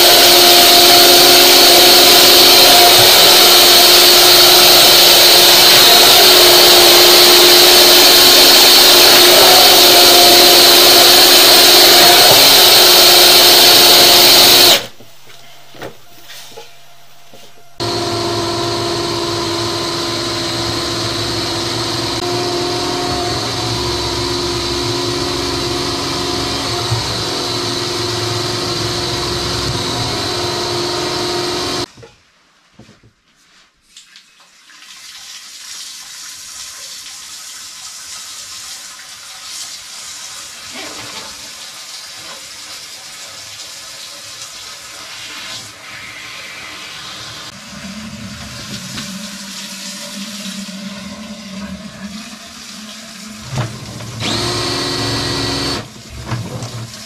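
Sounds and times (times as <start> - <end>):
drain-clearing machine running: 0.0 - 31.9, 45.1 - 57.0.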